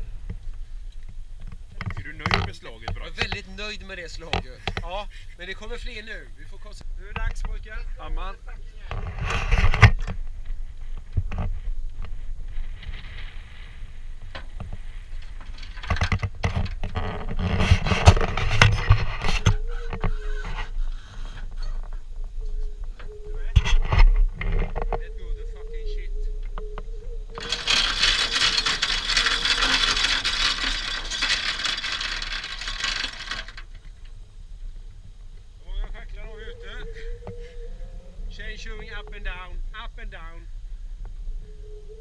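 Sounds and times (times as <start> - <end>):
wind rumbling on microphone: 0.0 - 42.0
gear clicks and knocks: 14.3 - 20.7, 27.3 - 34.2
anchor chain rattling: 14.8 - 20.7, 27.4 - 34.2.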